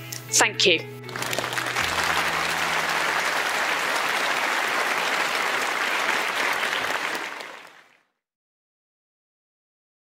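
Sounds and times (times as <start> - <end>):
audience applauding: 1.1 - 8.0.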